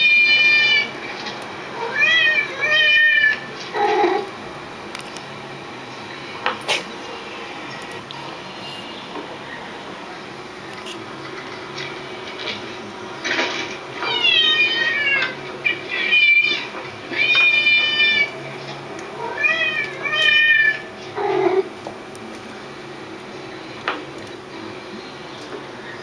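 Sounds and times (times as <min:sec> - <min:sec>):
cat meowing: 0:00.0 - 0:00.9, 0:01.7 - 0:04.3, 0:14.0 - 0:18.3, 0:19.2 - 0:21.7.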